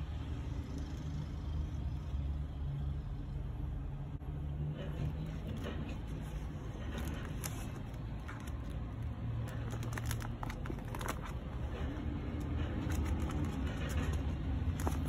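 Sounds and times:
plastic sleeve crinkling: 6.2 - 15.0.

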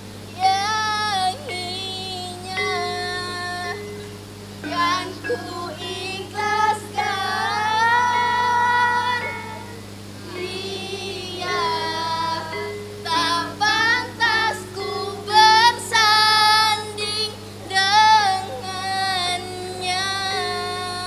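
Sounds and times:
girl singing slow melody: 0.0 - 21.0
musical accompaniment: 2.4 - 17.6.

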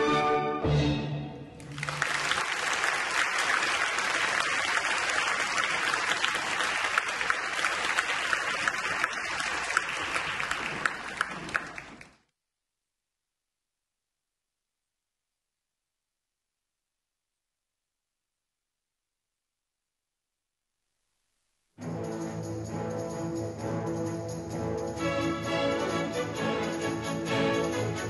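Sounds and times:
audience applauding: 1.6 - 12.2.

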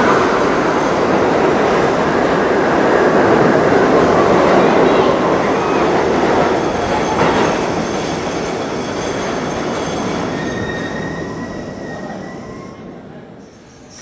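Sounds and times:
subway train rumbling: 0.0 - 14.0.

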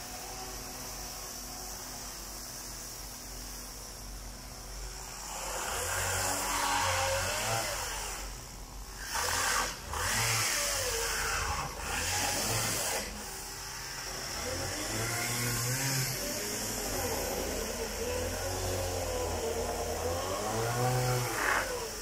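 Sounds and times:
chainsaw revving and cutting wood: 4.8 - 22.0.

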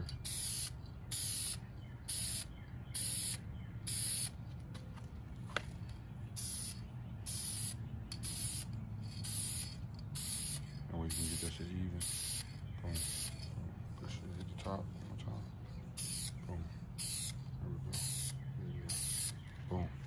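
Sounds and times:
aerosol spray can hissing: 0.3 - 4.3, 6.4 - 13.4, 16.0 - 16.4, 17.0 - 17.4, 18.0 - 19.4.

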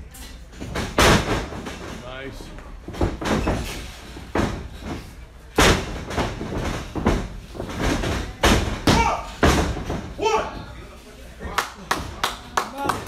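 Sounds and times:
bodies thudding on wrestling ring: 0.6 - 2.0, 2.9 - 10.3.

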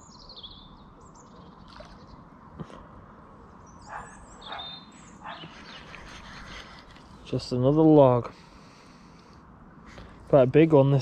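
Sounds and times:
small birds chirping: 0.0 - 10.4
steady outdoor background: 0.0 - 11.0.

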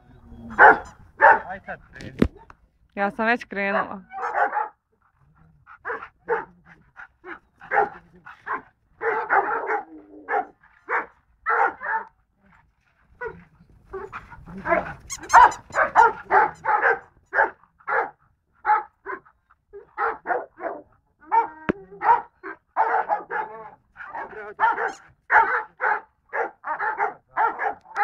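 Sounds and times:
dog barking: 0.4 - 1.6, 3.8 - 4.8, 5.8 - 6.6, 7.2 - 12.2, 14.0 - 28.0.

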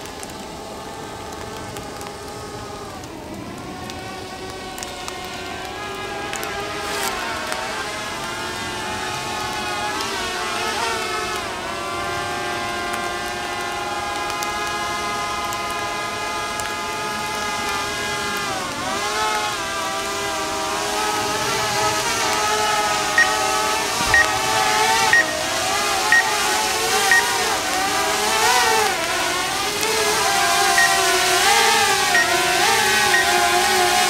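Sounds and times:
quadcopter propeller whine: 0.0 - 34.0
short high beeps: 24.1 - 24.4, 25.1 - 25.4, 30.8 - 31.0, 33.1 - 33.4.

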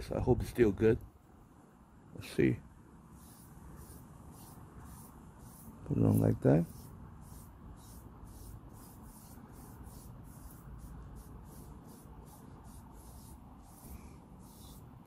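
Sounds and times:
foam brush scratchy swishes: 3.2 - 15.0.

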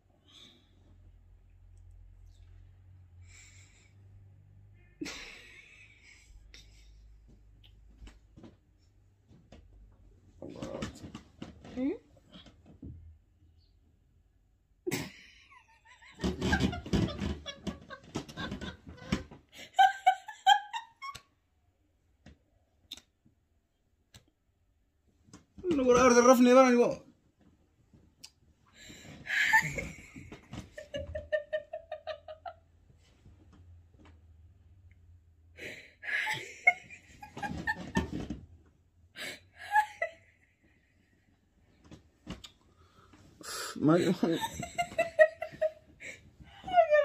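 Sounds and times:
woman giggling: 14.9 - 21.2, 29.3 - 32.6, 36.0 - 38.2, 43.8 - 47.0.

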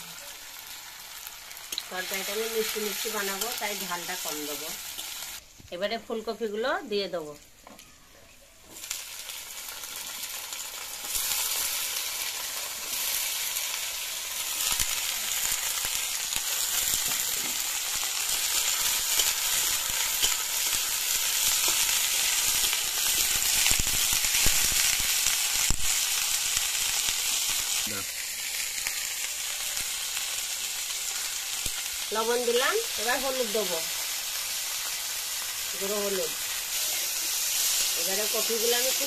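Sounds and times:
vegetables sizzling in hot oil: 0.0 - 8.0, 8.6 - 39.0
metal spatula stirring: 18.4 - 23.4.

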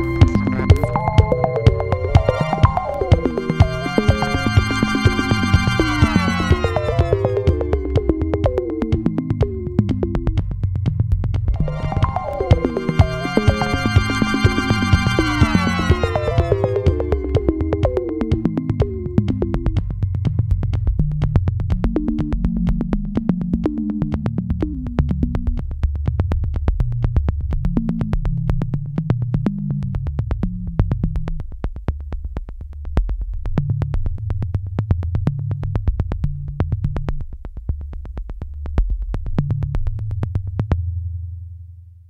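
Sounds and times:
electronic music: 0.0 - 10.0, 11.6 - 19.8.

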